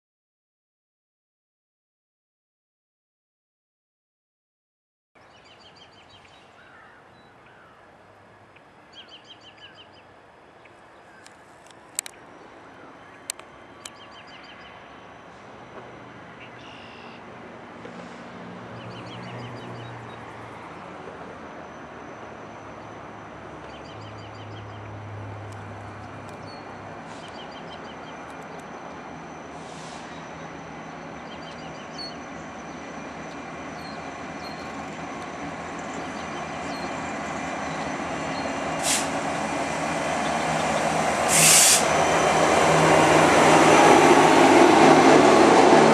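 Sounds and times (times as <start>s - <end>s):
birds chirping: 5.2s - 15.2s, 26.0s - 38.8s, 40.0s - 42.9s
diesel locomotive engine rumble: 10.0s - 45.9s
bursts of hiss: 38.8s - 39.2s, 41.2s - 41.9s.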